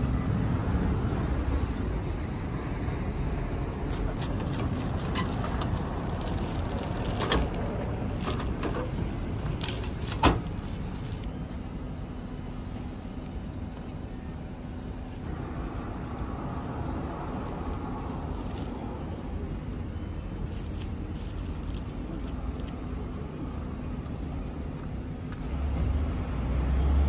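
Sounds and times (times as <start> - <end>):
steady low rumble: 0.0 - 25.3
plastic-wrapped spoon clacking: 4.2 - 11.2.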